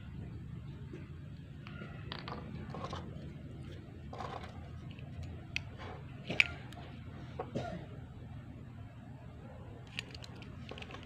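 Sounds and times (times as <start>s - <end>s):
low steady hum: 0.0s - 11.0s
objects tapping on wooden table: 2.1s - 3.0s.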